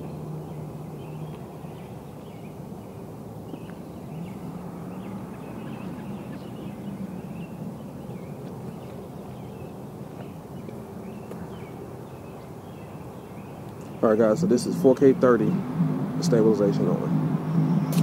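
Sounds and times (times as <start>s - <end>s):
small birds chirping: 0.0s - 18.0s
low rumble and hum: 13.4s - 18.0s.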